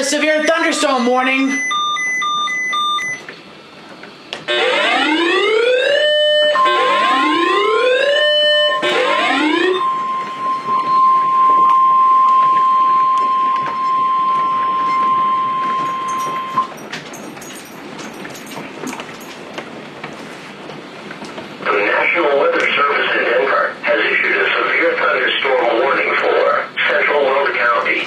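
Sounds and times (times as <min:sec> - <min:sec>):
rising whooping alarm tones: 0:00.0 - 0:03.3, 0:04.5 - 0:16.8
steady high alarm tone: 0:00.0 - 0:03.3, 0:04.5 - 0:17.8.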